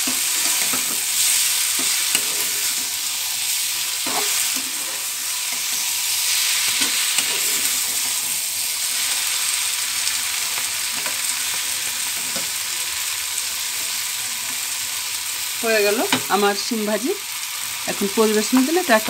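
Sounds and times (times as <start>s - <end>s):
steel spatula scraping pan: 0.0s - 3.0s, 4.0s - 8.4s
beans sizzling in pan: 0.0s - 19.0s.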